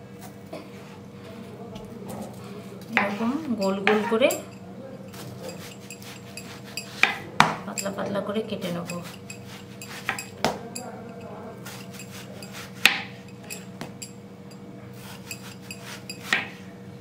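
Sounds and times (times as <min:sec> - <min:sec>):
steady low hum: 0:00.0 - 0:17.0
knife slicing on cutting board: 0:09.0 - 0:10.3, 0:11.6 - 0:13.1, 0:15.0 - 0:16.6.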